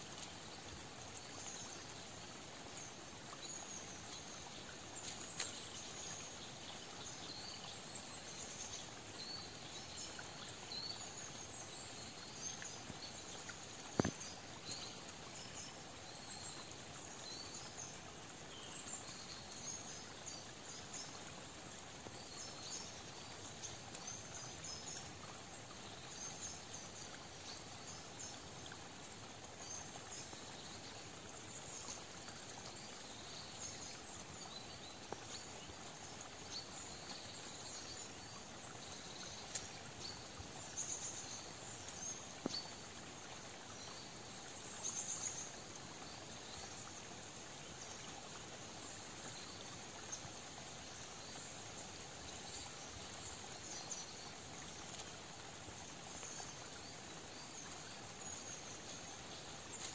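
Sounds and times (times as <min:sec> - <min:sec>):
soft woodland hiss: 0:00.0 - 0:59.9.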